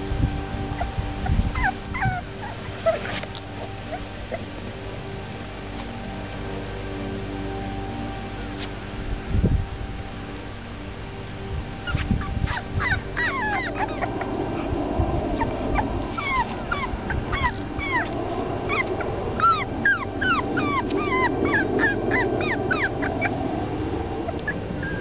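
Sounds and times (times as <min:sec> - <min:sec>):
puppies yipping and whimpering: 0:00.7 - 0:04.6, 0:11.8 - 0:25.0.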